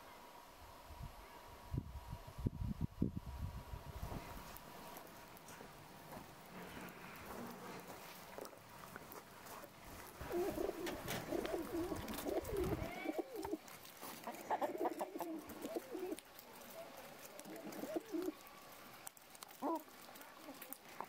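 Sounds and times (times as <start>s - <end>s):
pigeons cooing: 10.2s - 18.5s, 19.4s - 21.0s.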